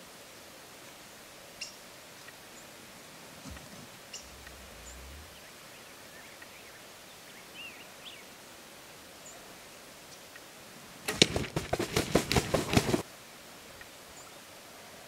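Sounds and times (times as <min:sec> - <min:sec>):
faint bird chirps: 0:01.6 - 0:08.3
turkey drumming low hum: 0:02.7 - 0:05.9.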